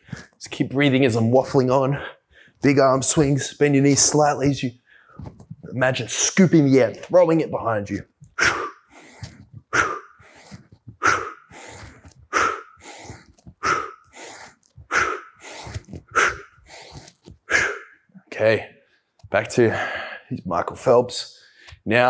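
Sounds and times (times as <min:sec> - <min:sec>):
man breathing hard: 0:08.2 - 0:18.1.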